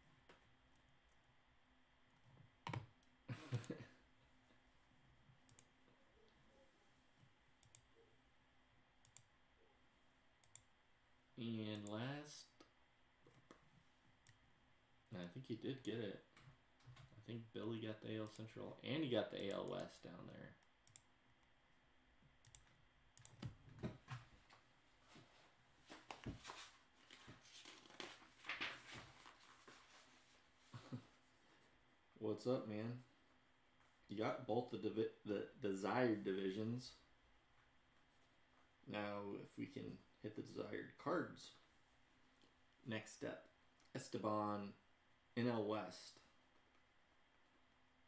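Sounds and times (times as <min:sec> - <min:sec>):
keyboard and mouse clicking: 0:20.8 - 0:21.1, 0:22.4 - 0:23.6.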